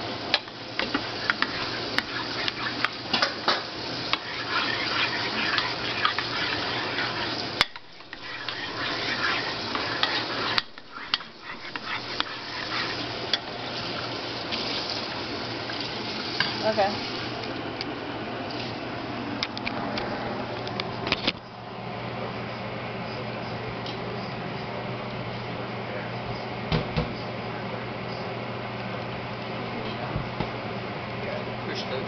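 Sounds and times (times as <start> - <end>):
metal spoon stirring thick sauce: 0.8 - 13.6.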